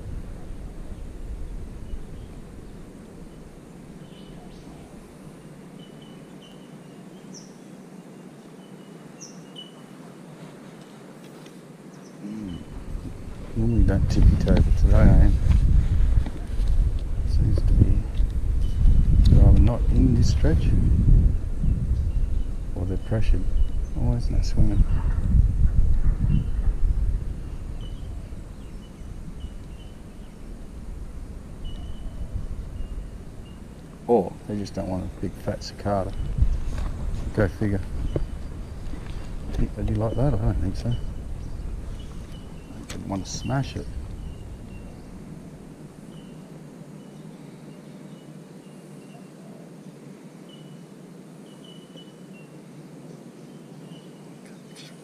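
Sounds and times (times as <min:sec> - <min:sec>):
low outdoor background noise: 0:00.0 - 0:55.0
bird chirps: 0:05.7 - 0:10.0, 0:27.4 - 0:30.4, 0:31.6 - 0:33.8, 0:37.3 - 0:45.2, 0:46.0 - 0:49.7, 0:50.4 - 0:55.0.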